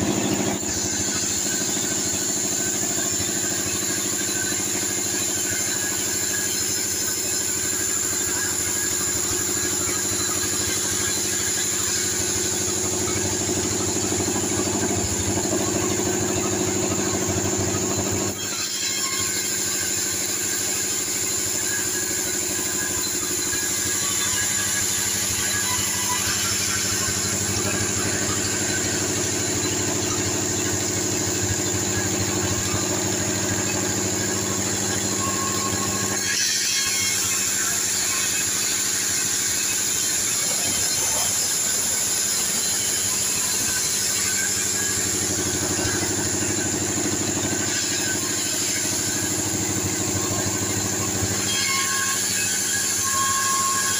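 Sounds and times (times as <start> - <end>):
band saw cutting logs: 0.0 - 53.9.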